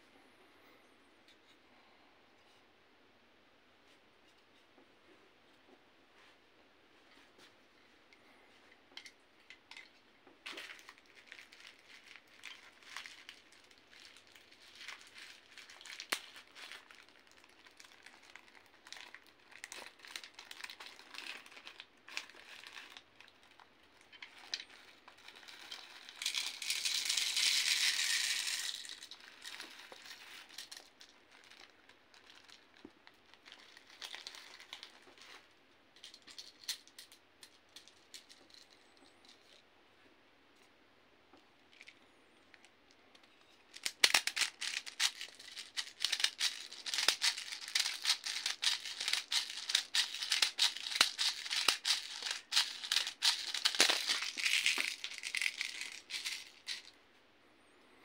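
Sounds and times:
plastic bag crinkling: 10.4s - 35.5s, 43.7s - 57.0s.

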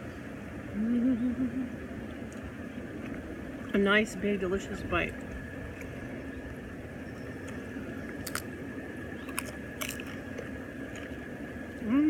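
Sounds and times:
person chewing food: 7.4s - 8.5s, 9.2s - 11.3s
crisp crunches: 8.1s - 8.5s, 9.3s - 11.2s.

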